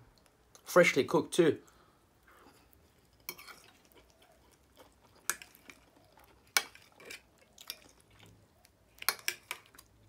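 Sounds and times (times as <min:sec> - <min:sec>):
chewing: 0:02.2 - 0:10.0.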